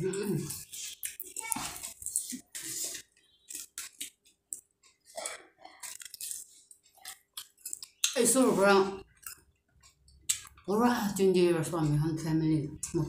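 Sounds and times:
chewing and lip-smacking: 0:00.5 - 0:08.2, 0:09.0 - 0:10.7.

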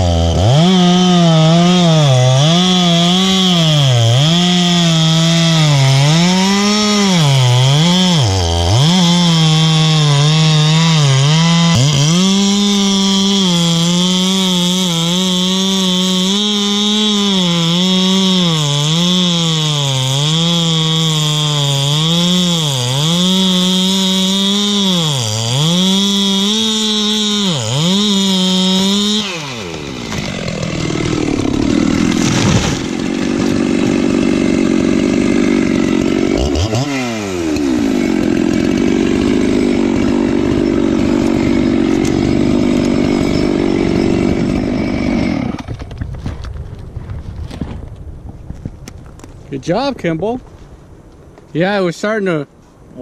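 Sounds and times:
chainsaw cutting hard wood: 0:00.0 - 0:46.5
tree crashing to the ground: 0:28.9 - 0:49.4.

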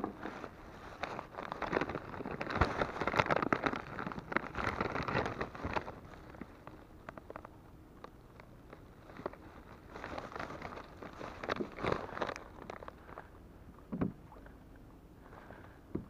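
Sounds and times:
plastic packaging crinkling: 0:00.1 - 0:13.3.

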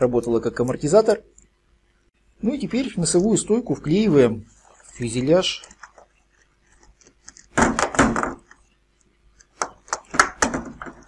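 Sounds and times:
plastic rubbing handling noise: 0:03.7 - 0:11.0
sharp plastic clicks and knocks: 0:09.4 - 0:11.0.

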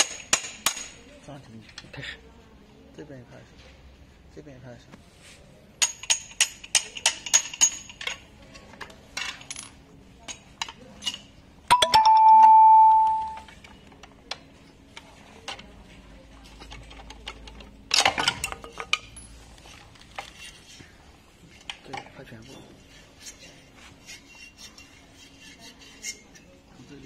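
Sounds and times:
metal tools clinking and clicking: 0:05.8 - 0:14.0, 0:16.5 - 0:20.8
struck metal ringing tone: 0:11.7 - 0:13.5.

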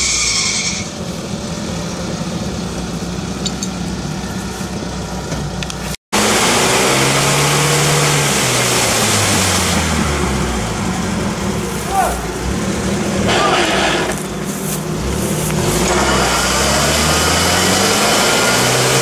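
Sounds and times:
off-road vehicle engine under load: 0:00.0 - 0:19.0
wheels splashing water and mud: 0:05.8 - 0:19.0.

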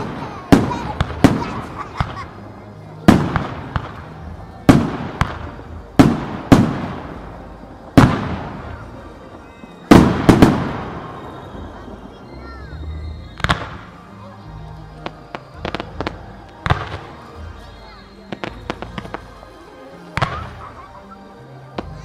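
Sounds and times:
fireworks pops and crackles: 0:00.0 - 0:20.9, 0:21.7 - 0:22.0
fireworks booming with echo: 0:00.0 - 0:22.0.

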